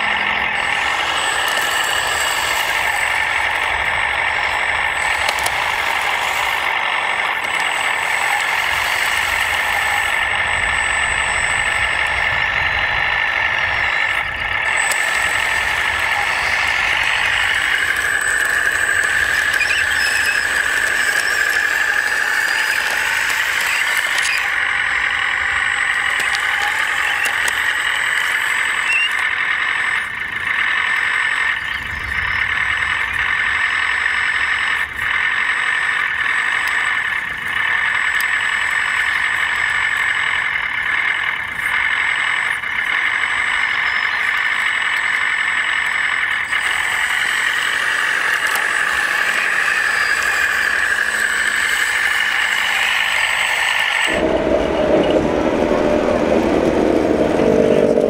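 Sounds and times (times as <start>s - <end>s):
high-pitched motor and gear whine: 0.0s - 58.0s.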